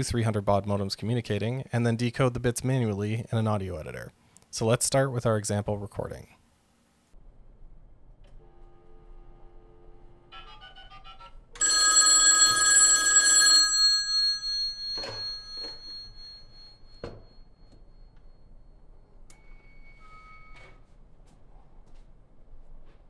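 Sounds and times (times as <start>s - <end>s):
telephone dialing tones: 11.6s - 16.5s
telephone bell ringing: 11.6s - 18.6s.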